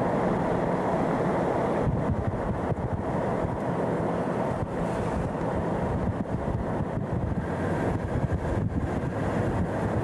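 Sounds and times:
wind buffeting microphone: 1.8 - 3.7, 4.5 - 10.0.

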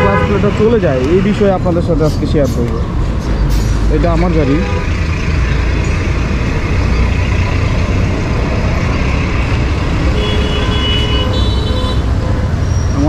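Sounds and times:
vehicle horn: 0.0 - 1.4, 10.1 - 12.6
road traffic rumble: 0.0 - 13.0.

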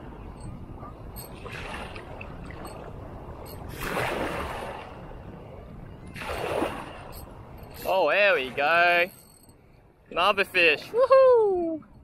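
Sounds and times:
wind: 0.0 - 12.0.

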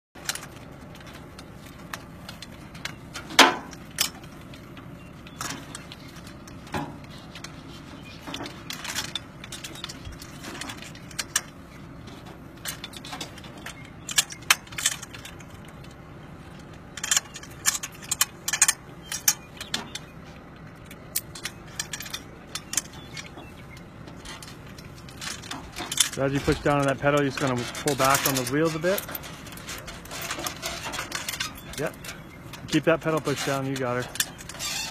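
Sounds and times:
metal hardware clinking and rattling: 0.2 - 34.9
steady background noise: 0.2 - 34.9.

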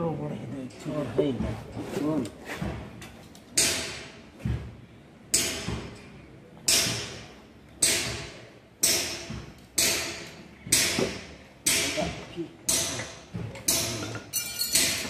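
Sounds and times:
sharp knocks: 5.3 - 6.0, 6.6 - 14.2.

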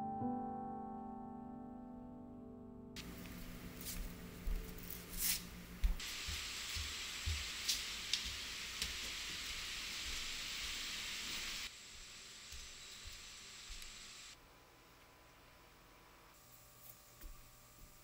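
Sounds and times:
steady hiss: 3.0 - 4.5, 5.1 - 14.4.

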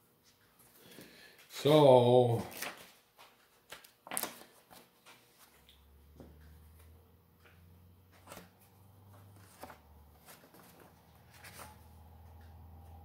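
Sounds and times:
paper rustling: 2.4 - 5.6, 8.1 - 12.1
low steady hum: 5.1 - 13.0.

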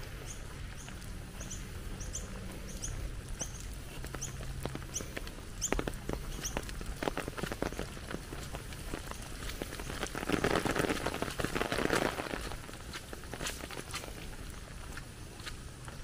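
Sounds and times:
water drops on wet leaves: 0.0 - 16.0
small bird chirping: 0.2 - 8.0.

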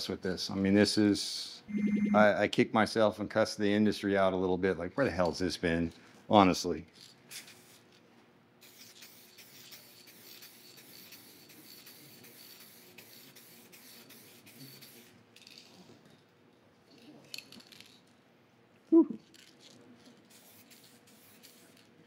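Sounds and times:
aerosol spray can hissing: 8.6 - 15.0, 20.3 - 21.9.

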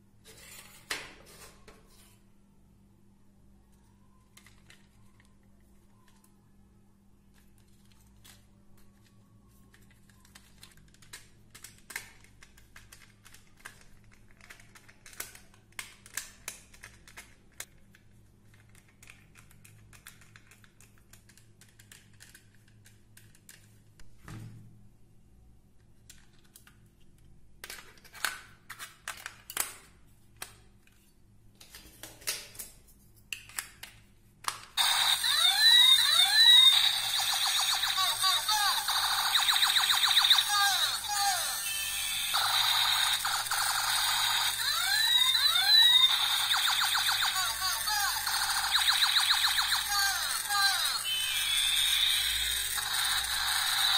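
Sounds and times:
faint steady hum: 0.0 - 53.9
plastic parts clicking and snapping: 9.7 - 23.8, 25.9 - 31.0, 31.6 - 34.8.

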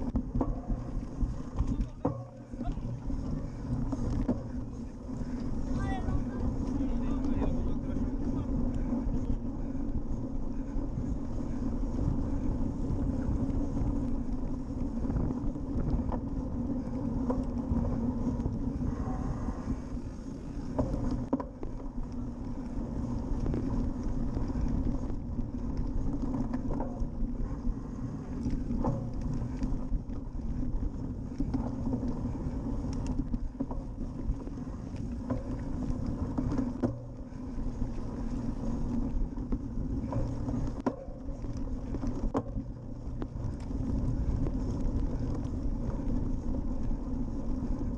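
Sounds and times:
bike knocks and rattles: 0.0 - 19.0, 19.7 - 47.9
wind rumble on microphone: 0.0 - 47.9.

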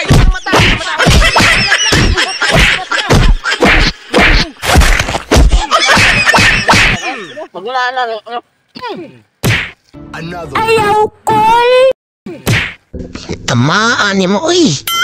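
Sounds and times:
stick whacking bare back: 9.4 - 9.8, 12.4 - 12.8.

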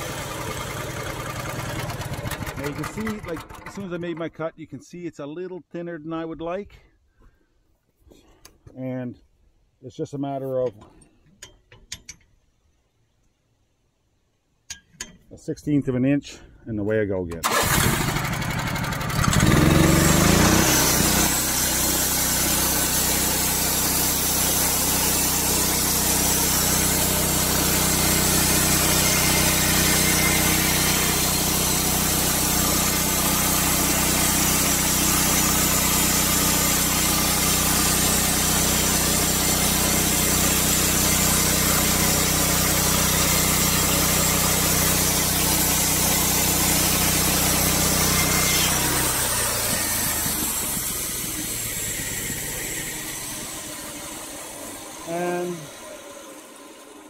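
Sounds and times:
gasoline engine revving: 0.0 - 3.8, 17.4 - 56.8
band blade cutting wood: 19.3 - 56.6.

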